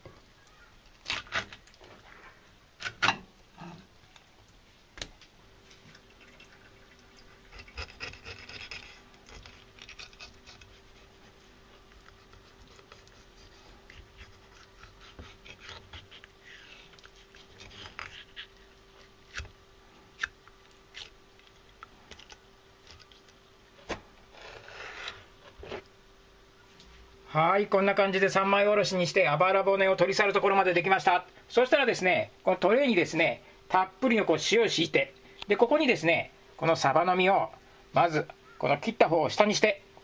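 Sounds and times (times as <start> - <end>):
knife scraping fish bones: 7.5 - 11.2, 11.9 - 18.6.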